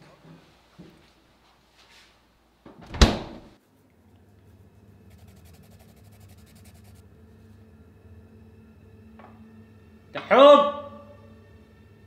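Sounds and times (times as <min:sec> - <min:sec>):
refrigerator door thud: 0:02.8 - 0:03.5
low hum: 0:03.6 - 0:10.1.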